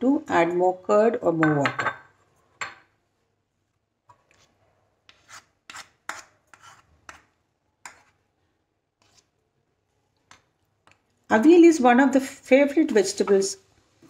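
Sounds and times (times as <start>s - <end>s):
spoon scraping spatula: 4.0s - 9.5s.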